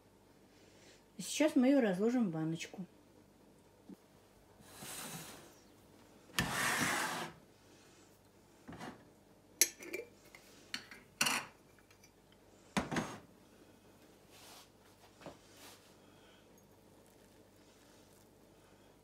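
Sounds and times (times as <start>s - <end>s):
dishes clinking: 9.6s - 10.1s, 10.8s - 12.2s.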